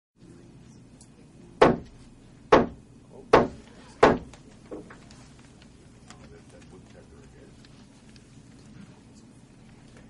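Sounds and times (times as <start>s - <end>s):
sharp knocks ringing in room: 1.6s - 4.9s.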